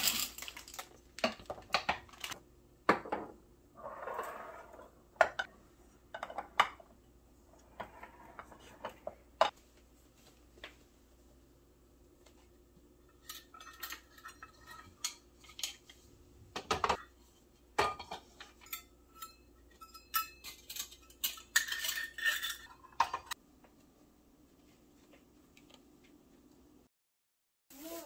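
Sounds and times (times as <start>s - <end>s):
metal measuring cups clinking: 0.0s - 2.4s, 13.1s - 15.9s, 17.8s - 23.4s.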